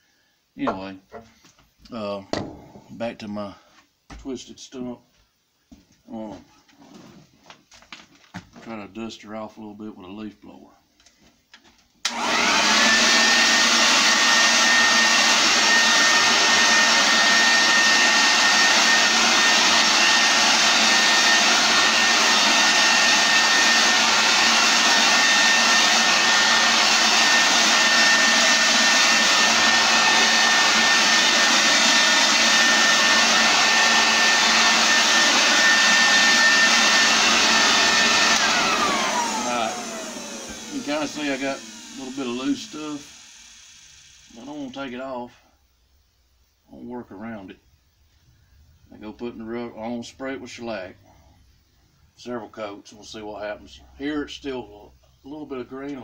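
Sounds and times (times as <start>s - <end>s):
leaf blower whine and air rush: 12.0s - 45.2s.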